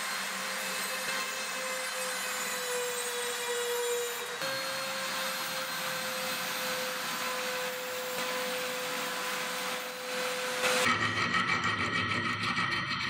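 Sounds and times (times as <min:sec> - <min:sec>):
rotary tool motor whine: 0:00.0 - 0:10.9.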